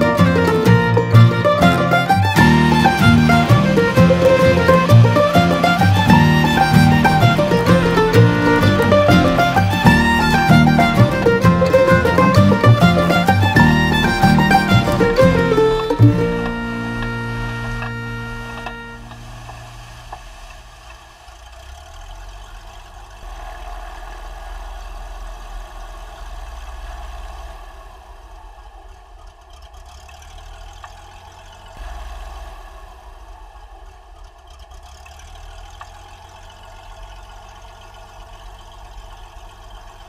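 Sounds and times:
propeller plane engine droning: 0.0s - 23.5s.

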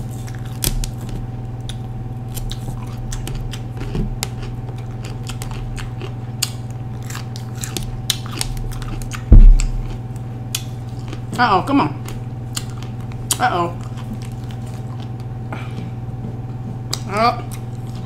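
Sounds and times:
chewing crisp bell pepper: 0.0s - 18.0s
loud low thump: 9.3s - 9.9s.

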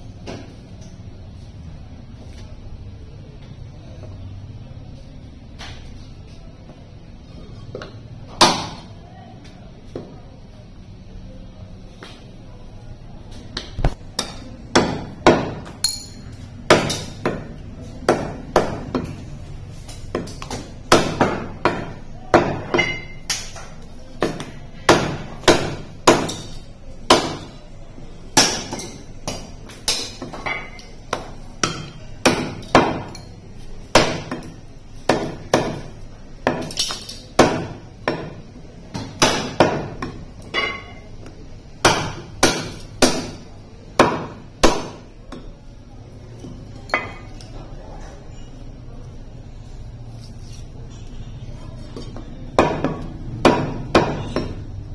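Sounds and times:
cleaver chopping meat and bone: 8.4s - 8.9s, 13.6s - 15.8s, 16.6s - 19.2s, 19.9s - 27.6s, 28.4s - 33.2s, 33.9s - 40.8s, 41.8s - 45.4s, 52.5s - 54.7s.

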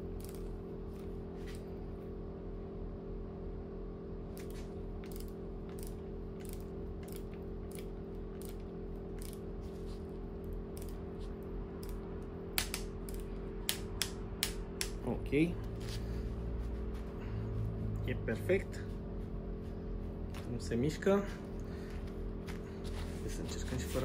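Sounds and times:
steady low hum: 0.0s - 24.0s
torque wrench ratchet clicking: 9.2s - 9.4s.

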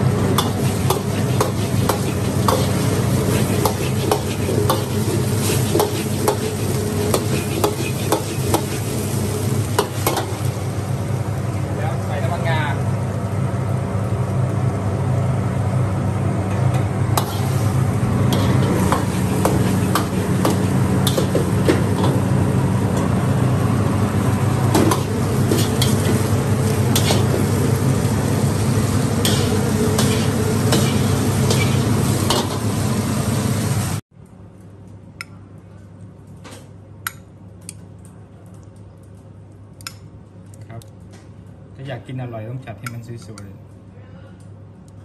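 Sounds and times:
food sizzling in a wok: 0.0s - 11.5s, 17.2s - 34.0s
gas burner burning: 0.0s - 35.3s.

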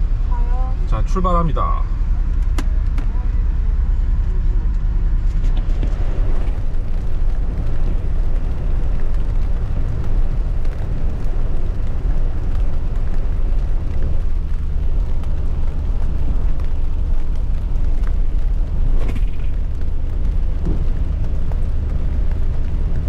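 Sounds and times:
engine and tyres rumbling on wet road: 0.0s - 23.0s
rain and spray hissing: 5.6s - 23.0s.

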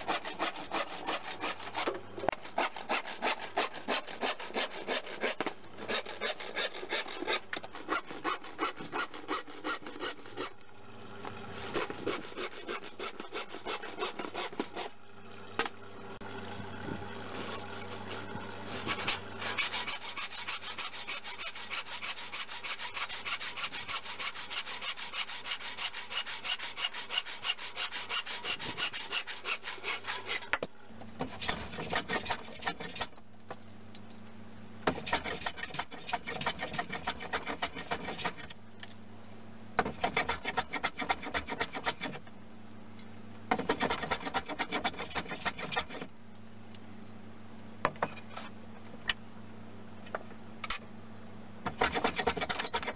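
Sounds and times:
bench plane shaving wood: 0.0s - 10.5s, 11.6s - 14.9s, 18.7s - 30.6s, 34.9s - 38.5s, 39.9s - 42.2s, 43.6s - 46.1s, 51.7s - 52.9s
hand saw cutting wood: 0.0s - 10.6s, 11.5s - 15.0s, 17.4s - 30.6s, 31.2s - 33.2s, 34.9s - 38.6s, 39.8s - 42.2s, 43.5s - 46.1s, 51.7s - 52.9s.

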